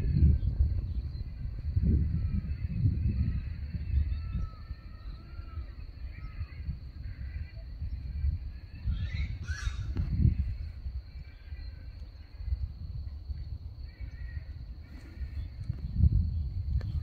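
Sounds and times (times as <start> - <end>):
faint bird chirps: 0.0 - 17.0
low wind rumble on microphone: 0.0 - 17.0
harsh bird call: 8.7 - 10.6.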